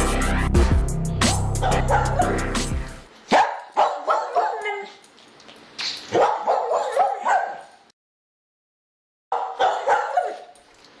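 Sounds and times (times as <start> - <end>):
dog barking: 1.6 - 2.5, 3.3 - 5.0, 6.1 - 7.8, 9.3 - 10.6.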